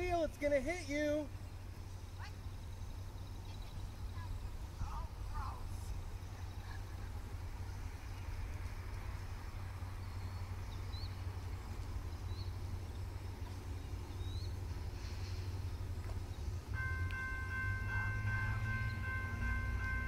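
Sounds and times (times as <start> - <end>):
low steady rumble: 0.0 - 20.0
railroad crossing bell ringing: 16.7 - 20.0.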